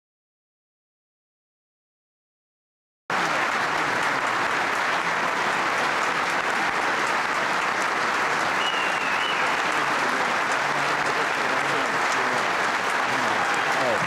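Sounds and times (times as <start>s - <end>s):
crowd applauding: 3.1s - 14.0s.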